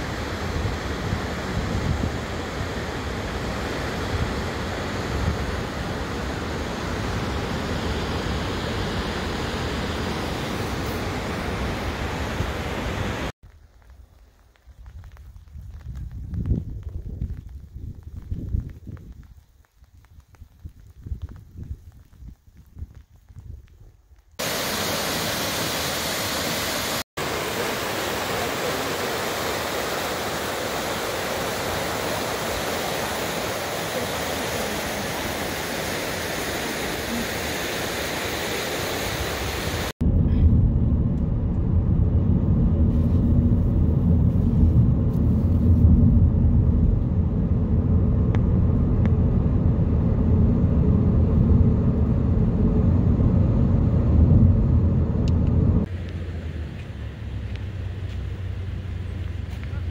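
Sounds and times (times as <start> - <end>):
falling water rushing: 0.0 - 13.3, 24.4 - 40.0
deep steady rumble: 40.0 - 59.9.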